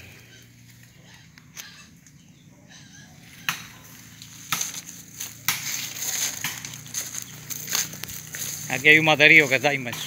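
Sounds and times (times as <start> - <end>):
footsteps through dry leaves: 3.2 - 10.0.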